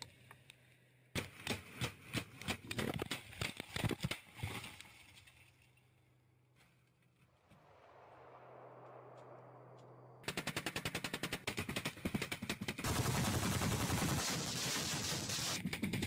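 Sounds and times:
rapid automatic gunfire: 10.2s - 16.0s.

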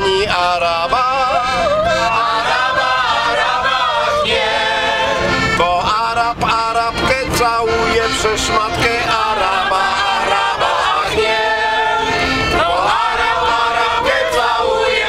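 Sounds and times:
accordion: 0.0s - 15.0s
group singing in chorus: 1.1s - 5.6s, 8.8s - 15.0s.

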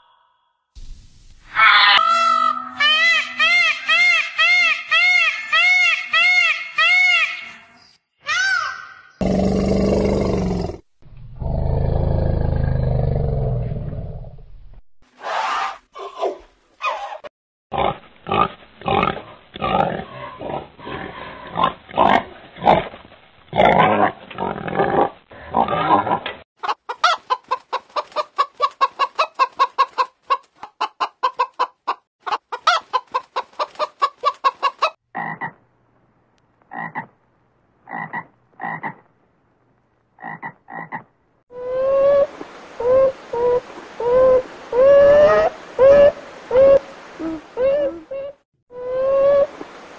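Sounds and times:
chickens clucking: 26.6s - 35.6s.

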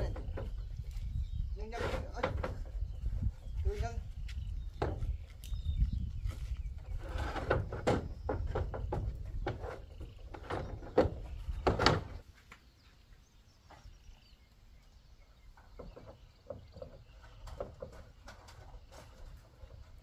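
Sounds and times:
metal roofing sheet scraping: 1.6s - 2.8s, 6.7s - 12.2s.

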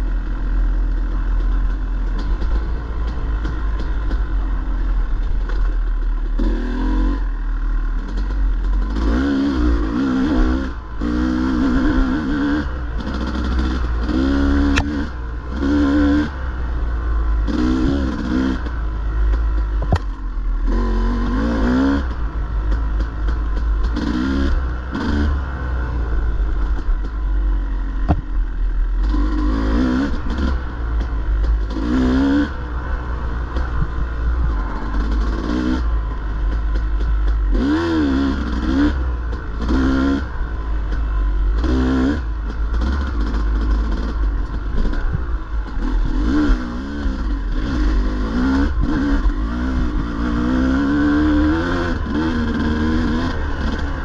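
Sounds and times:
dirt bike engine revving: 0.0s - 54.0s
low rumble: 16.3s - 41.6s
sharp knocks and clatter: 19.3s - 20.2s.

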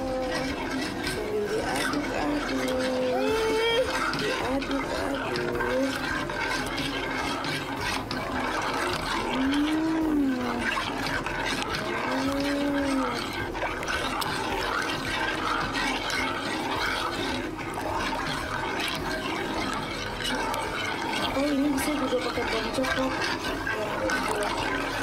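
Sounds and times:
liquid swishing in a pot: 0.0s - 25.0s
person vocalizing: 2.6s - 6.0s.

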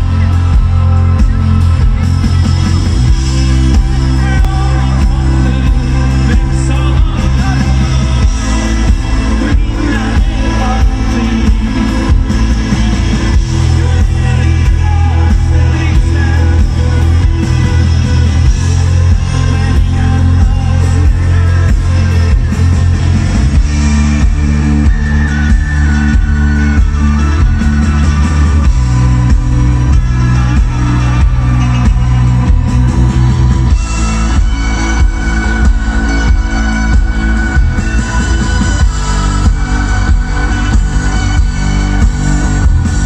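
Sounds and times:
rock band playing live: 0.0s - 43.0s
person singing: 3.3s - 22.7s.

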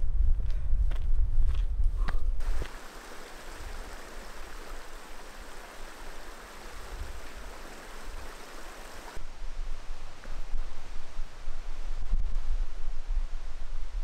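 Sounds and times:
stream trickling over rocks: 2.4s - 9.2s.

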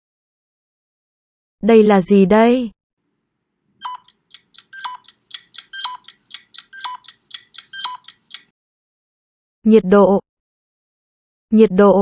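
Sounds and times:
electronic ticking jingle: 3.8s - 8.5s.

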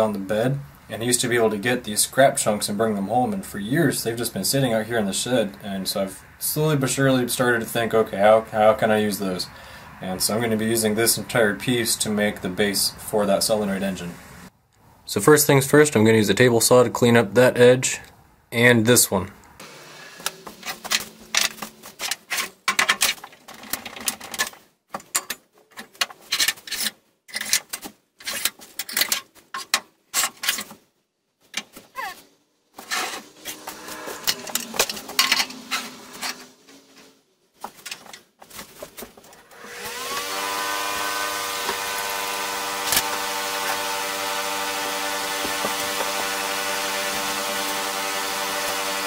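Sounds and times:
table saw motor whining: 19.6s - 21.8s, 32.8s - 36.9s, 39.5s - 49.0s.

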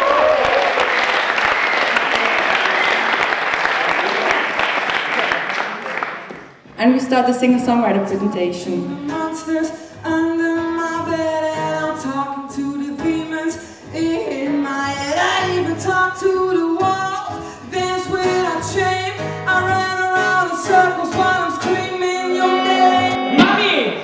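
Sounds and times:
strummed acoustic guitar: 7.7s - 24.0s
woman singing into microphone: 8.1s - 23.9s.

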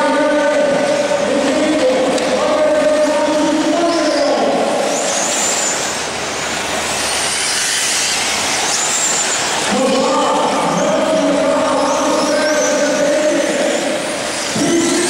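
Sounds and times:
high motor whines: 0.0s - 15.0s
radio-controlled car motors: 5.1s - 9.7s.

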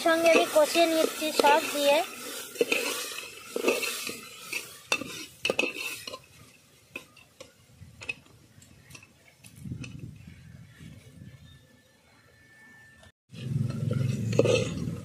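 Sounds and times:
food frying in oil: 0.0s - 7.2s
metal ladle scraping a pot: 0.0s - 9.1s, 13.3s - 15.0s.

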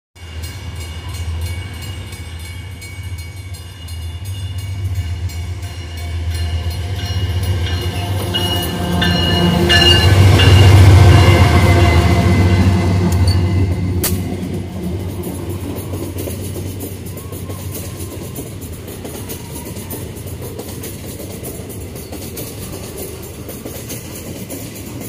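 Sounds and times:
diesel locomotive engines droning: 0.2s - 25.0s.

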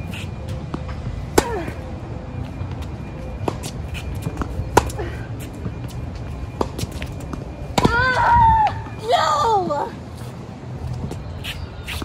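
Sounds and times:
shoes scuffing on court: 0.0s - 1.0s, 2.7s - 7.6s, 10.1s - 12.0s.

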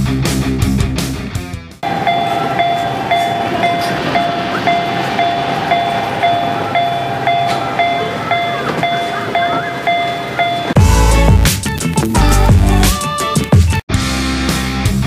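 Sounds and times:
level-crossing warning bell: 1.8s - 11.2s.

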